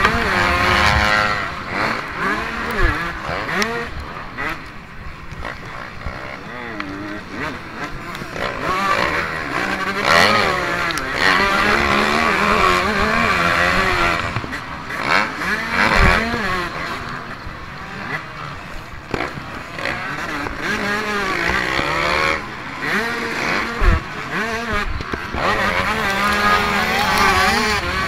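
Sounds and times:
motocross bike engine revving: 0.0s - 28.0s.

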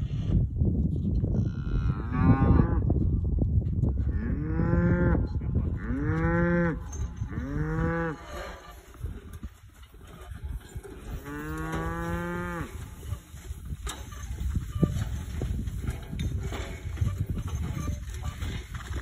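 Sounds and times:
cattle mooing: 5.8s - 8.7s, 11.2s - 12.9s.

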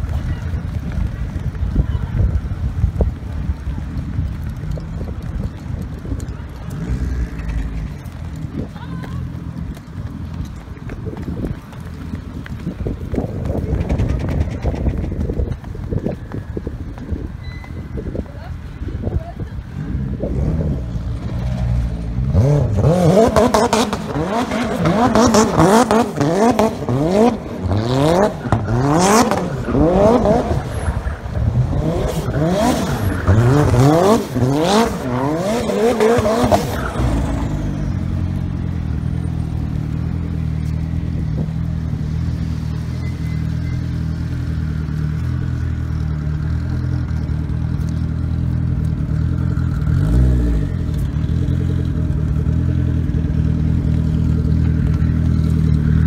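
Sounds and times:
car engine idling: 0.0s - 56.0s
tyre squeal: 17.3s - 18.1s, 42.2s - 44.9s
car engine revving hard: 20.3s - 38.1s.

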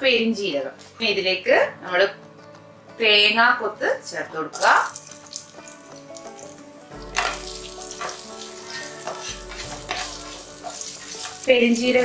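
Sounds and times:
food sizzling in oil: 4.5s - 12.0s
spatula scraping pan: 7.1s - 12.0s.

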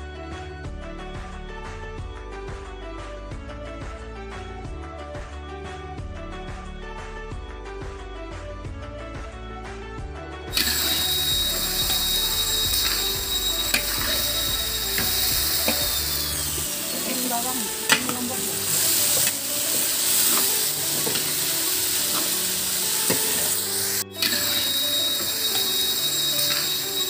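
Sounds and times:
food sizzling in a wok: 10.5s - 27.0s
high whine: 10.5s - 27.0s
metal spatula scraping wok: 10.5s - 27.0s.

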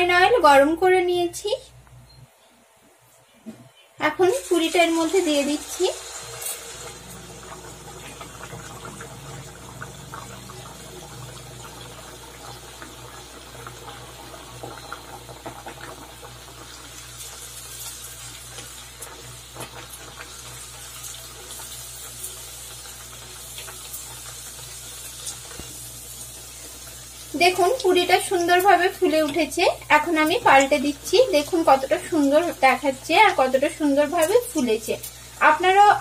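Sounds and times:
deep-frying in oil sizzle: 4.1s - 36.0s
oil crackles and pops: 11.8s - 29.4s.

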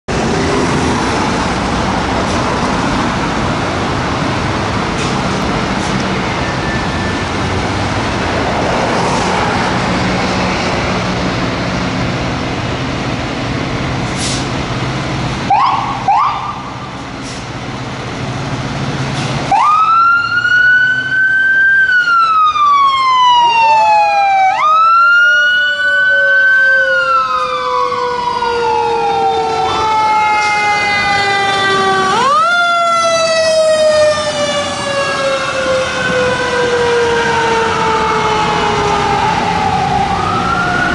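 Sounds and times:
traffic and engine noise: 0.0s - 40.9s
mechanical fire truck sirens wailing: 15.4s - 16.8s, 19.5s - 40.9s.

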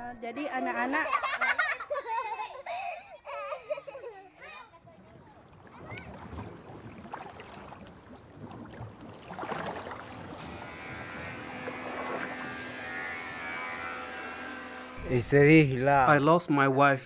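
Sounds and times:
motor humming: 10.0s - 15.5s.

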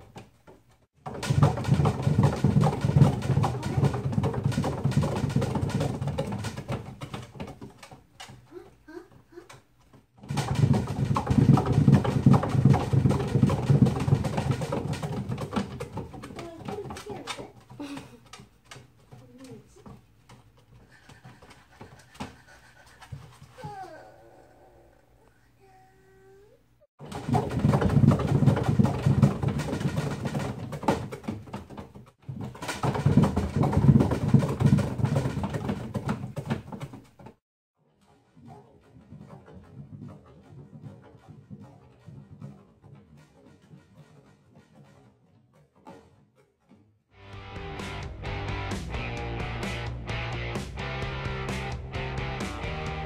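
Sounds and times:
paws thudding on wood: 0.0s - 8.6s, 9.6s - 23.5s
wooden exercise wheel rumbling: 0.0s - 24.9s, 27.0s - 53.0s.

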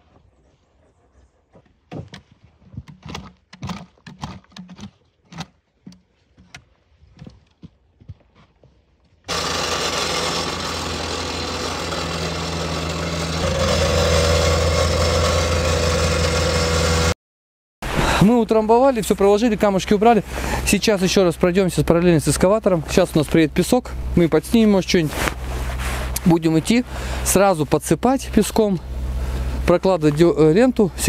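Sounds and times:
machine engine droning: 9.3s - 17.2s.

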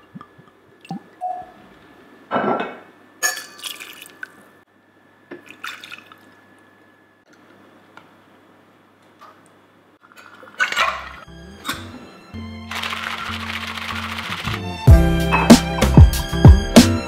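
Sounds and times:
glass clinking: 2.5s - 3.7s
liquid splash: 3.4s - 4.4s, 5.4s - 6.3s
drinks poured into cocktail shaker: 12.7s - 14.7s.

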